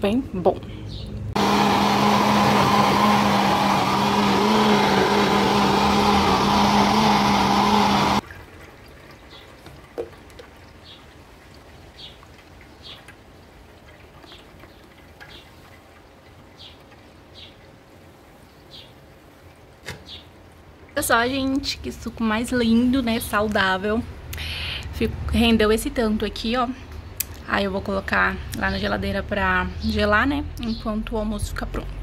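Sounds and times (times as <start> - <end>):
blender running: 1.4 - 8.2.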